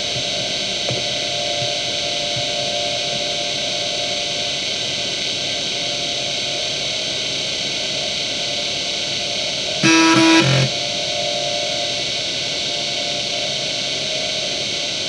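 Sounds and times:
hard drive seek buzzing: 0:00.0 - 0:04.7, 0:09.6 - 0:12.1
hard drive whine and hiss: 0:00.0 - 0:15.0.

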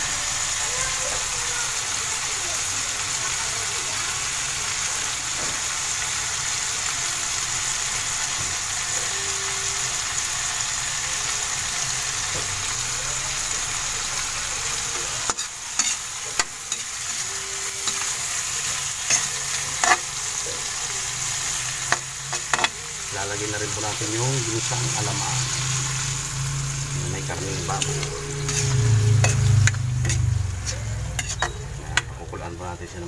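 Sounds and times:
tomatoes sizzling in oil: 0:00.0 - 0:33.0
metal spatula scraping wok: 0:14.8 - 0:32.2.

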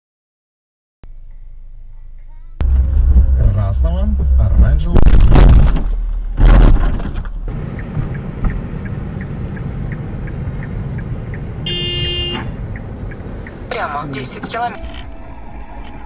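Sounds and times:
engine and road rumble: 0:01.0 - 0:16.0
car crashing into truck: 0:05.0 - 0:07.4
regular ticking: 0:07.2 - 0:14.9.

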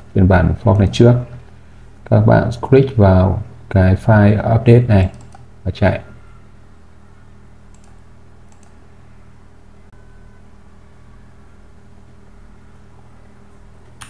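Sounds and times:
low electrical hum: 0:00.0 - 0:14.0
faint clicks: 0:07.7 - 0:08.8.

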